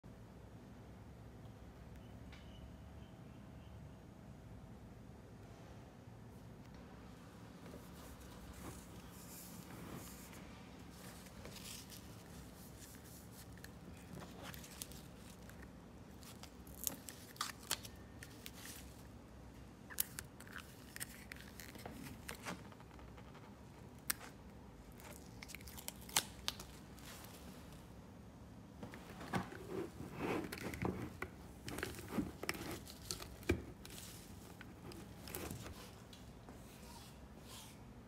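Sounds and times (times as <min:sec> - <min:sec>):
fabric rustling: 0:28.9 - 0:36.1.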